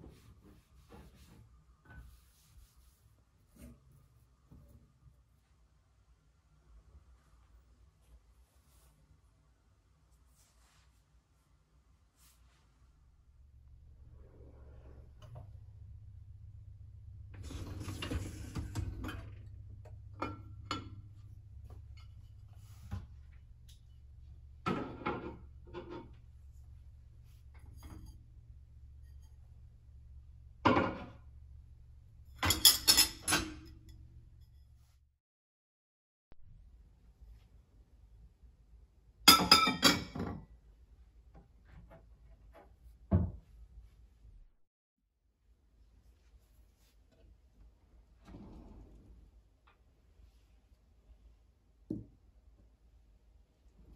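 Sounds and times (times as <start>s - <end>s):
wire rack sliding on runners: 17.4s - 19.4s
ceramic bowls clinking on rack: 32.4s - 33.7s, 39.3s - 40.2s.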